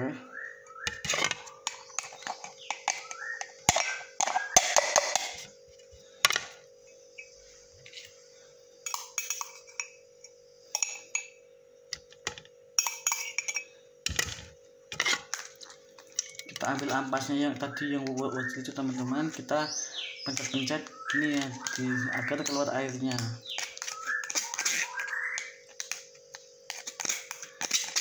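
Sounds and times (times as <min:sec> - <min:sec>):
faint steady hum: 0:00.0 - 0:28.0
glassware and utensils clinking: 0:08.8 - 0:10.0, 0:10.7 - 0:11.4, 0:12.8 - 0:14.4, 0:15.0 - 0:17.0, 0:21.3 - 0:28.0.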